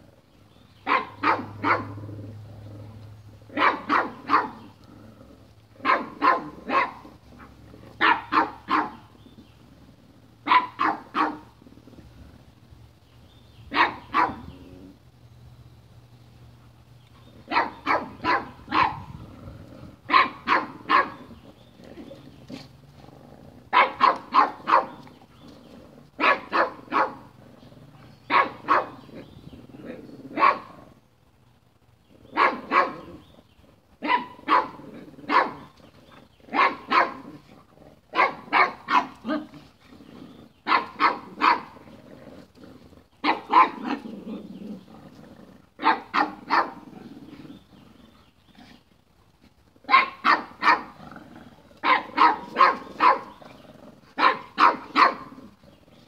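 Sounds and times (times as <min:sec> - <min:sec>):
dogs barking: 0:00.8 - 0:02.1, 0:03.5 - 0:04.8, 0:05.8 - 0:09.2, 0:10.4 - 0:11.6, 0:13.7 - 0:14.6, 0:17.4 - 0:19.2, 0:20.1 - 0:21.4, 0:23.7 - 0:25.1, 0:26.2 - 0:27.4, 0:28.2 - 0:29.3, 0:29.9 - 0:30.8, 0:32.3 - 0:33.2, 0:34.0 - 0:35.8, 0:36.5 - 0:37.4, 0:38.1 - 0:39.6, 0:40.6 - 0:41.8, 0:43.2 - 0:44.1, 0:45.8 - 0:46.9, 0:49.9 - 0:51.0, 0:51.8 - 0:53.4, 0:54.1 - 0:55.6.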